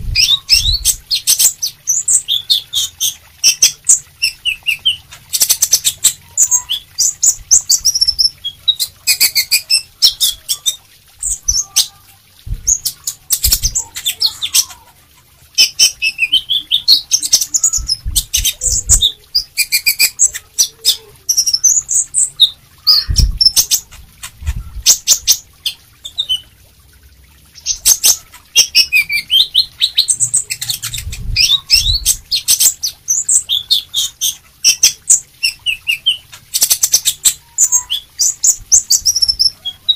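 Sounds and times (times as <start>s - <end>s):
bird twittering song: 0.0s - 26.5s, 27.5s - 39.9s
low thumps: 12.4s - 12.8s.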